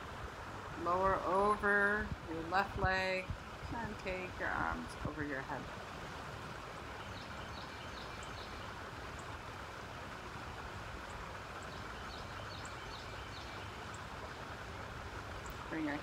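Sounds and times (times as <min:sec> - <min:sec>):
flowing river water: 0:00.0 - 0:16.0.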